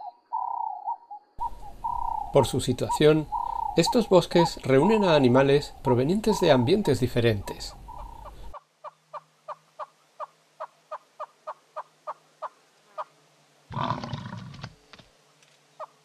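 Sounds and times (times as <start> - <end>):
deeper animal call: 1.4 - 6.8, 13.7 - 14.7.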